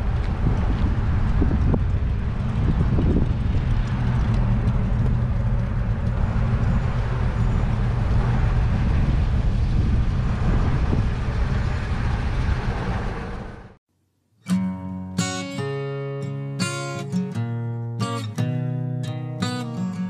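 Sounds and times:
truck engine low rumble: 0.0s - 13.8s
wind noise: 0.0s - 13.8s.

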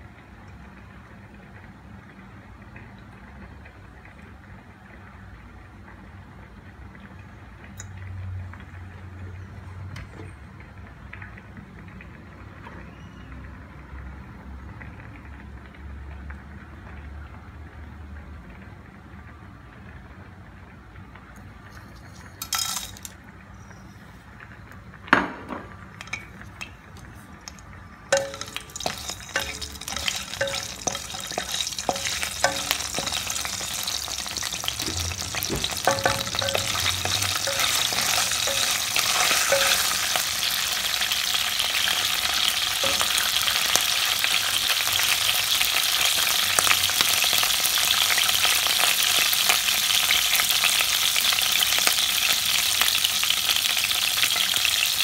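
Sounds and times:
spices sizzling in hot oil: 21.8s - 24.0s, 25.9s - 55.0s.

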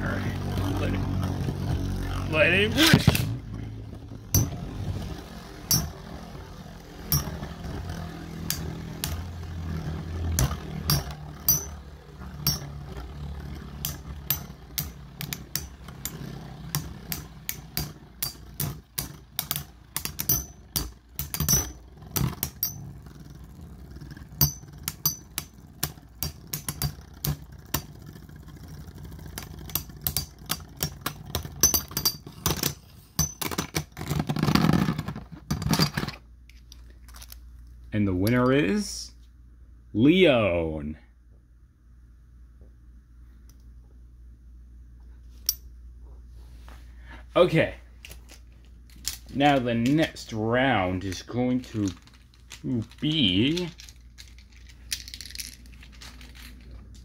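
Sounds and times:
spinning tops whirring: 0.0s - 33.2s
spinning tops clacking together: 4.2s - 13.0s, 13.6s - 33.8s, 48.0s - 57.0s.

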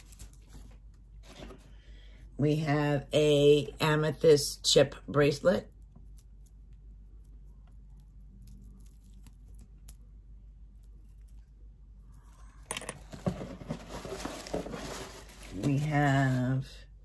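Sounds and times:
packing paper rustling: 0.0s - 1.7s, 13.0s - 16.4s.

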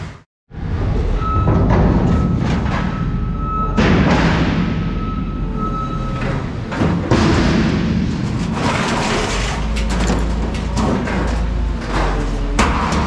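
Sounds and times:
sharp metal knocks: 1.4s - 9.0s
scrap metal clanking and scraping: 1.4s - 13.0s.

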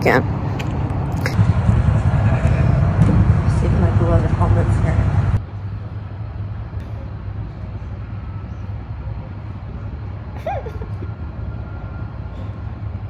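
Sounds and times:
low rumble: 0.2s - 10.0s.

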